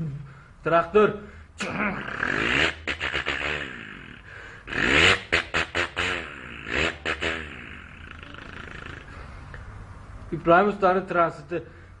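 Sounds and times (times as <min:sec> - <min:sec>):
man imitating engine with mouth: 0:01.6 - 0:09.6.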